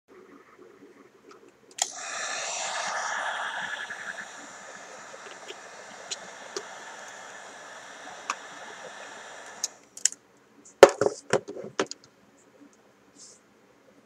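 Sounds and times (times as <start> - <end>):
heat gun fan blowing: 1.8 - 9.9.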